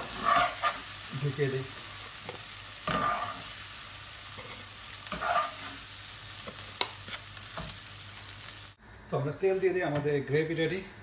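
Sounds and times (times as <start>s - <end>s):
spatula scraping frying pan: 0.0s - 1.0s, 2.3s - 3.6s, 4.3s - 7.8s
light sizzle: 0.0s - 10.8s.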